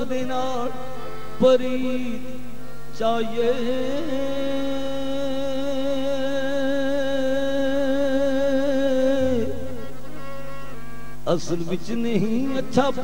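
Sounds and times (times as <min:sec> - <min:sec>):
person singing a long note: 0:08.0 - 0:10.0
harmonium chord: 0:09.0 - 0:13.0.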